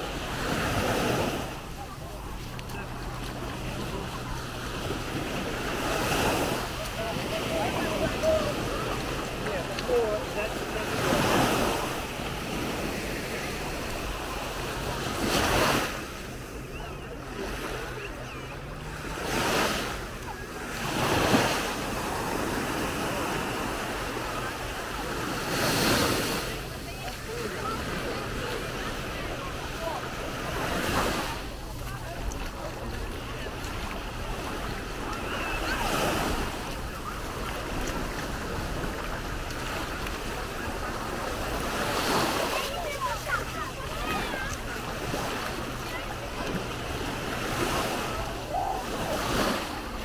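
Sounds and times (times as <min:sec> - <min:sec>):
small waves breaking on sand: 0:00.0 - 0:50.0.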